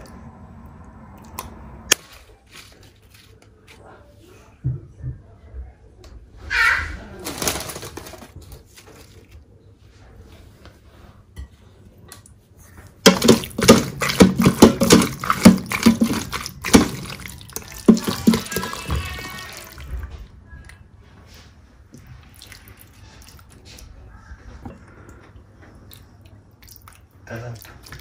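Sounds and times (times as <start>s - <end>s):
spoon stirring thick pasta: 13.0s - 19.9s.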